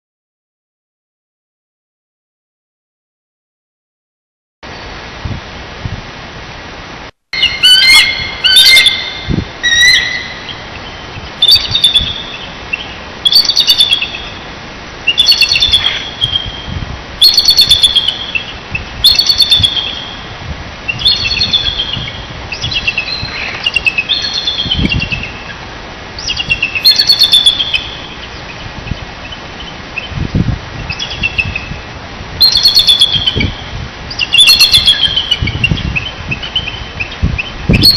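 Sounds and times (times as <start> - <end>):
microphone hiss: 4.6 - 37.9
eagles chattering calls: 7.4 - 14.3, 15.1 - 16.6.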